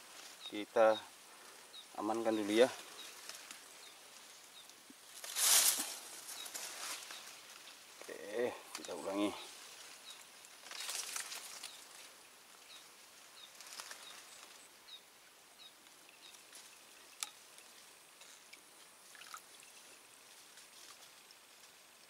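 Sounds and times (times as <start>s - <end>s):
faint hiss: 0.0s - 22.0s
soft rustles: 2.3s - 14.7s.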